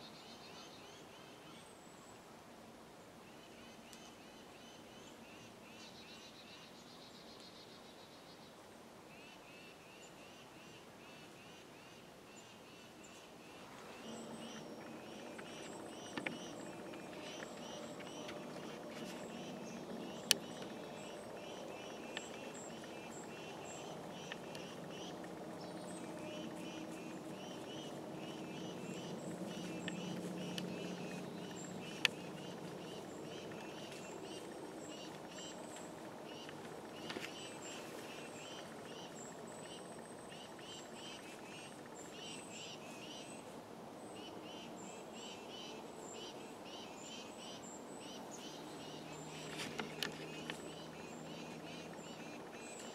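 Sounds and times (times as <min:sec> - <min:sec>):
low hum: 0:13.4 - 0:42.7.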